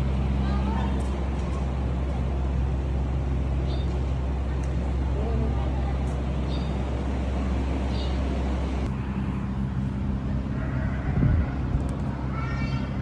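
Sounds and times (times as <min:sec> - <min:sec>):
low mechanical hum: 0:00.0 - 0:13.0
high-pitched animal cry: 0:10.5 - 0:11.7.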